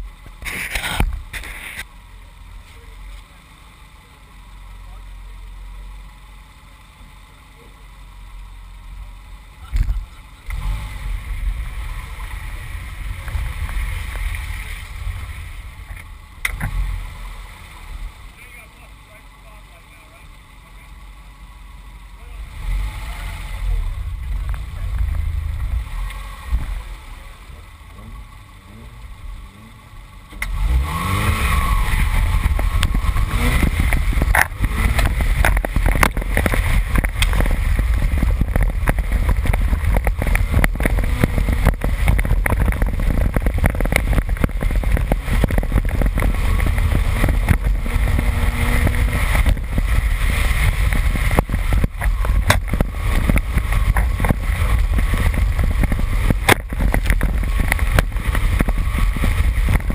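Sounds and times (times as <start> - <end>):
car engine revving at full throttle: 0.0 - 59.9
gravel striking car body: 0.2 - 1.9, 12.0 - 16.9, 30.3 - 59.9.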